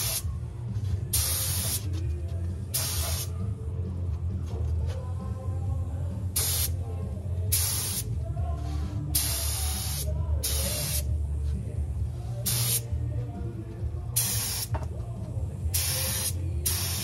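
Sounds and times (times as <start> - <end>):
steady low hum: 0.0 - 17.0
spray gun hissing: 15.8 - 17.0.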